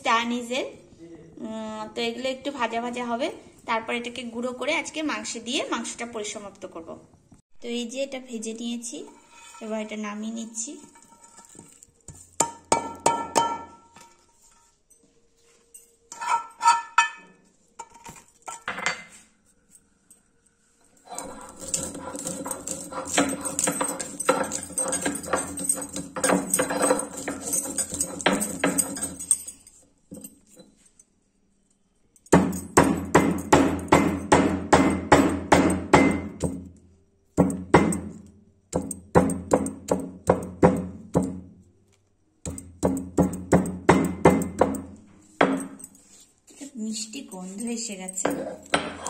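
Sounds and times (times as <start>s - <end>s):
stone roller grinding on stone slab: 9.1s - 11.9s, 21.0s - 29.1s.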